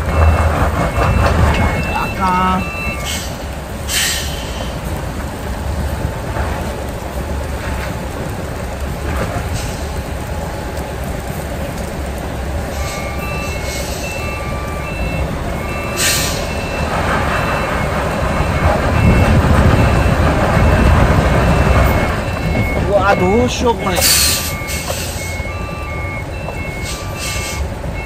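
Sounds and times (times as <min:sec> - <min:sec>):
reversing beeper: 0:00.0 - 0:03.4, 0:12.7 - 0:28.0
diesel truck engine: 0:00.0 - 0:28.0
rain hissing: 0:00.0 - 0:28.0
air hiss: 0:03.9 - 0:04.6.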